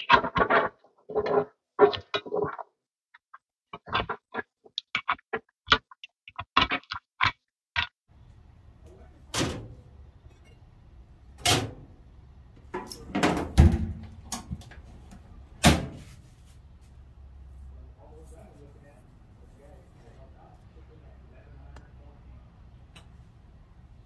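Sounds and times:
metal knocks and bangs: 0:12.7 - 0:14.6
cabinet door swinging shut: 0:13.1 - 0:14.2.

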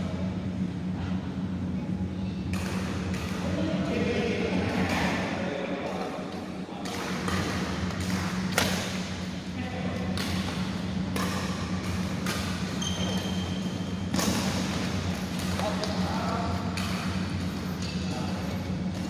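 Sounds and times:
steady low hum: 0:00.0 - 0:19.0
rackets striking shuttlecock: 0:02.5 - 0:03.6, 0:06.8 - 0:09.3, 0:10.0 - 0:18.2.

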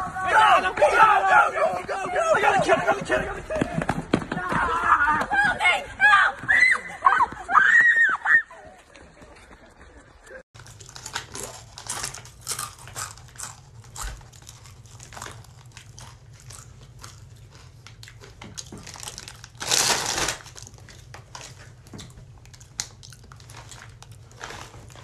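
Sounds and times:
chip bag crinkling: 0:10.6 - 0:21.8, 0:22.4 - 0:25.0.

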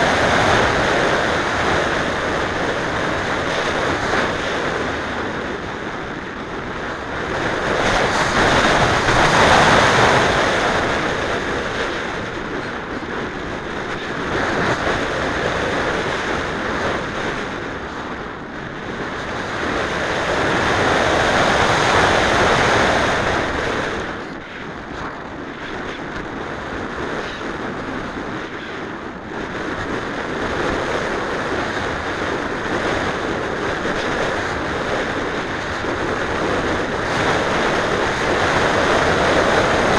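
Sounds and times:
air rushing over microphone: 0:00.0 - 0:28.3.

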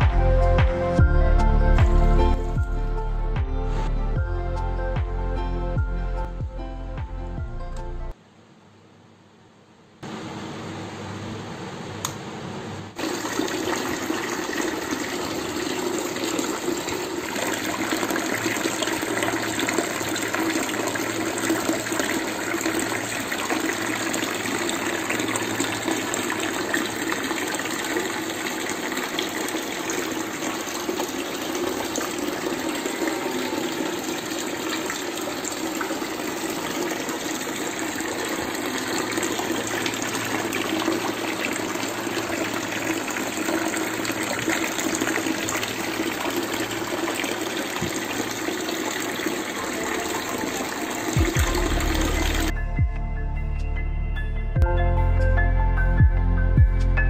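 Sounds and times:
fountain water pouring and splashing: 0:13.0 - 0:52.5.

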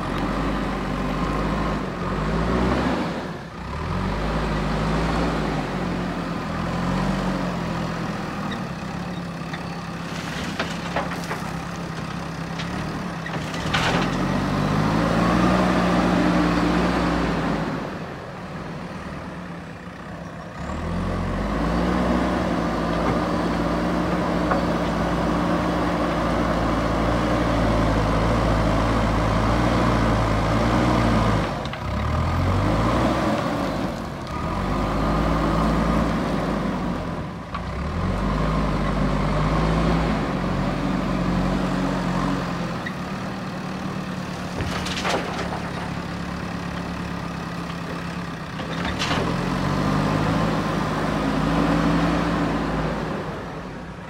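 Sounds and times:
diesel engine revving: 0:00.0 - 0:54.0
bucket dumping gravel: 0:10.0 - 0:11.6.

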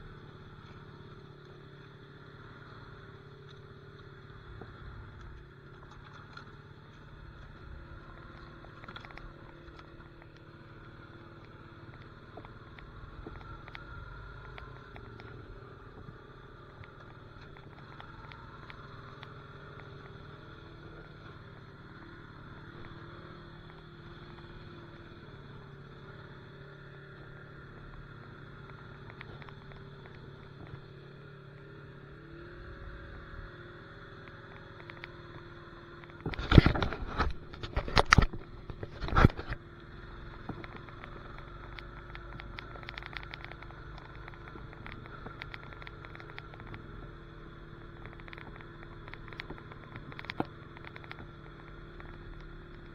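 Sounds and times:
atv engine running: 0:00.0 - 0:52.9.

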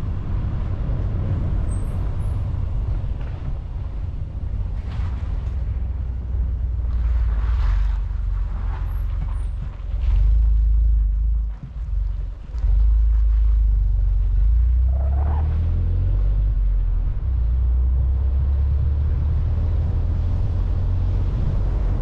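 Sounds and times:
car driving rumble: 0:00.0 - 0:22.0.

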